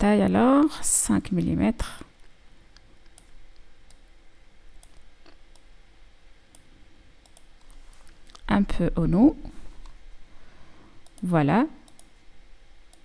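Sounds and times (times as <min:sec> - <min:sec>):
computer mouse clicking: 0:03.0 - 0:04.0, 0:04.8 - 0:05.7, 0:06.5 - 0:08.4, 0:11.9 - 0:12.1.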